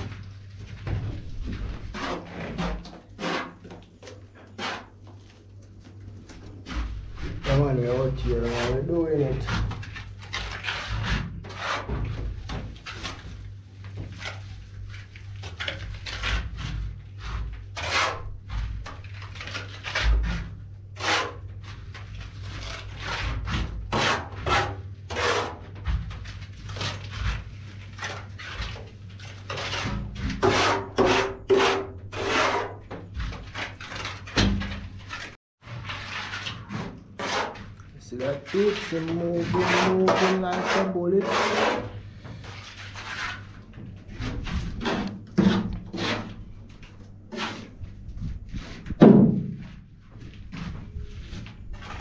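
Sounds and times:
trowel scraping wet render: 0:01.9 - 0:05.0, 0:06.8 - 0:12.1, 0:14.1 - 0:46.6, 0:47.3 - 0:47.8.

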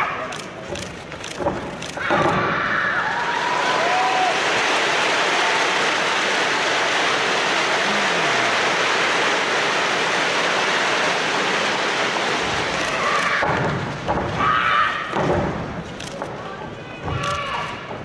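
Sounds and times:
crowd applauding: 0:03.0 - 0:13.4.

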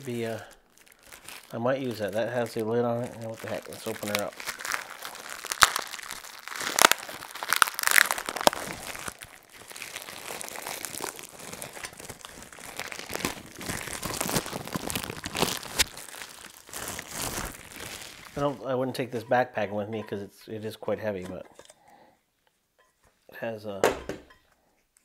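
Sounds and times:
plastic bag crinkling: 0:00.0 - 0:19.1.

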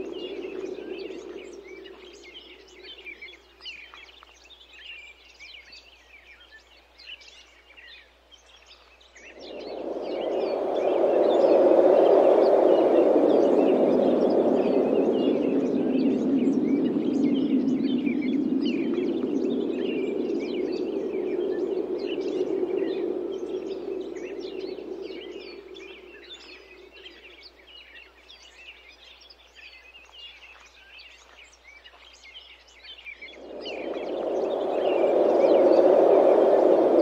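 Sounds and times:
wind blowing: 0:00.0 - 0:03.8, 0:09.2 - 0:27.7, 0:33.1 - 0:37.0
small birds chirping: 0:00.0 - 0:37.0.

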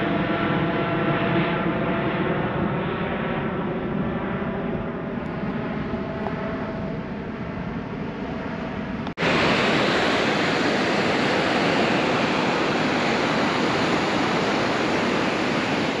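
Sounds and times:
distant jet engine rumble: 0:00.0 - 0:16.0
ocean surf washing onto beach: 0:09.2 - 0:16.0.

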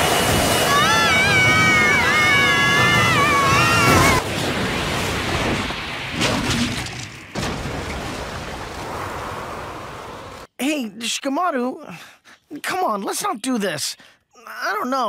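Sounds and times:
rushing water: 0:00.0 - 0:10.5
child crying out: 0:00.6 - 0:04.2
sudden thuds: 0:05.3 - 0:08.5.

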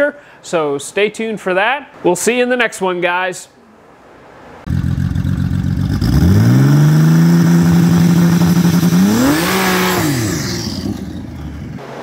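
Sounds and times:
car engine revving: 0:04.7 - 0:12.0.

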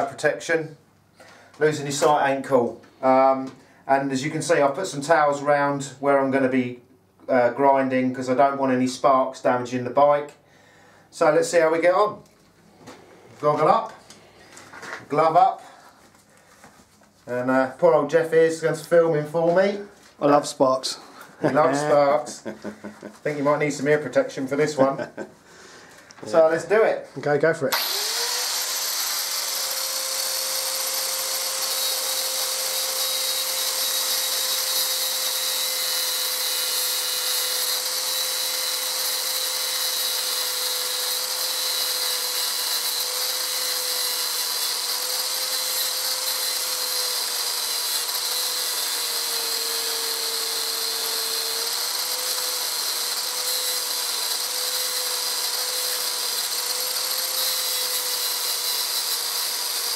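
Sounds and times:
angle grinder grinding metal: 0:21.0 - 0:25.2, 0:27.7 - 0:59.9.

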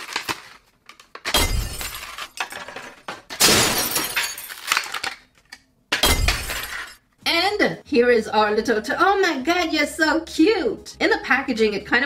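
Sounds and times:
plastic packaging crackling: 0:00.0 - 0:01.2, 0:04.5 - 0:05.5.

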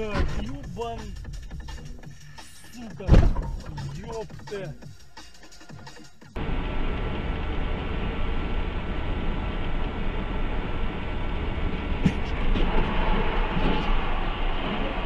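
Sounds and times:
road and wind noise: 0:06.4 - 0:15.0.

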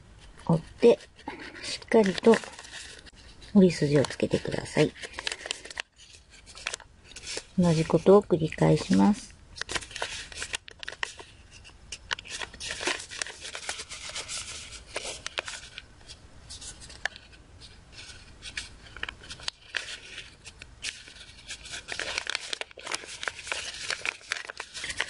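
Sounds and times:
paper rustling and creasing: 0:00.2 - 0:25.0.

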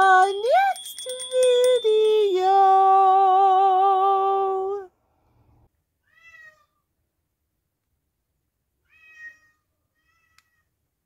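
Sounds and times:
cat meowing: 0:08.8 - 0:10.6.

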